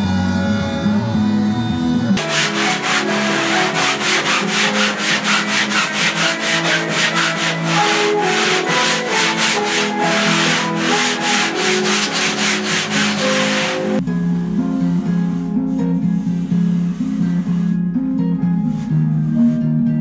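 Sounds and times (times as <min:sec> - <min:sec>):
sanding block rubbing on foam: 0:02.2 - 0:14.0.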